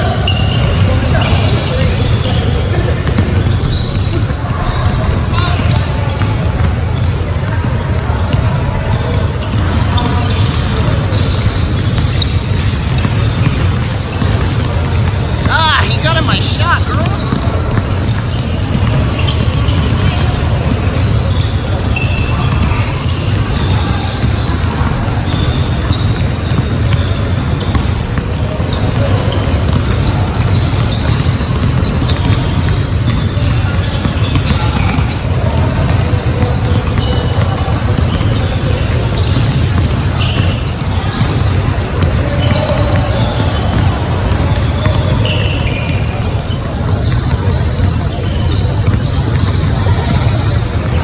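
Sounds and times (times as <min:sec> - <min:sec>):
basketballs bouncing on hardwood: 0:00.0 - 0:51.0
shoe squeaks: 0:00.0 - 0:51.0.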